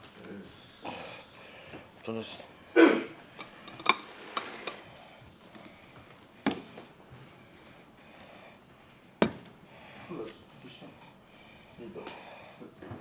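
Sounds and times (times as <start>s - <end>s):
tableware clinking: 3.3s - 4.8s.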